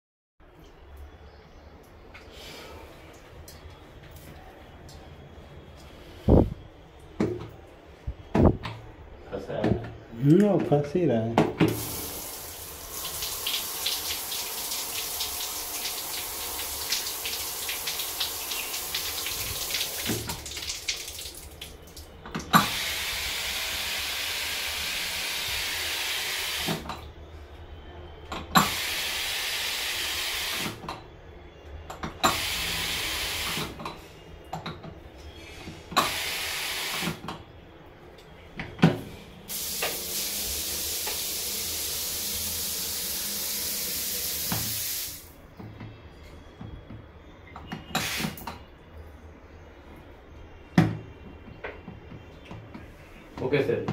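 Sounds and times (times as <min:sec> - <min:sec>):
shower spray hiss: 0:11.7 - 0:20.3, 0:22.6 - 0:26.8, 0:28.6 - 0:30.8, 0:32.3 - 0:33.7, 0:36.0 - 0:37.2, 0:39.5 - 0:45.3, 0:48.0 - 0:48.4.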